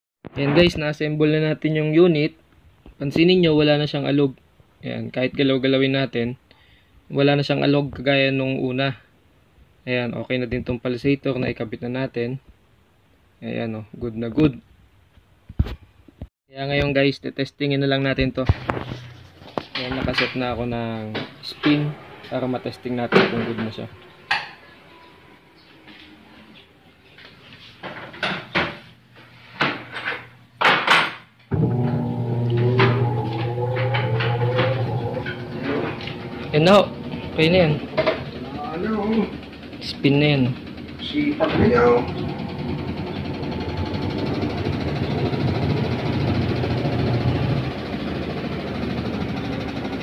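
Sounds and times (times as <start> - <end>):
washing machine spinning: 31.5 - 50.0
knocks and clatters: 37.8 - 42.4.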